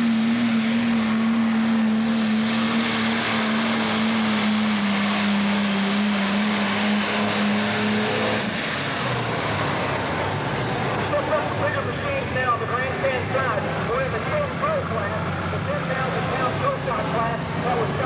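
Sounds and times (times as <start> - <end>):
diesel engine roaring under load: 0.0 - 18.0.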